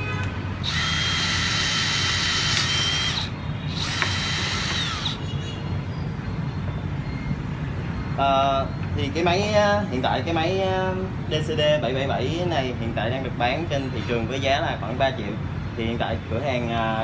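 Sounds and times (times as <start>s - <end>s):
drill whining into wood: 0.6s - 5.2s.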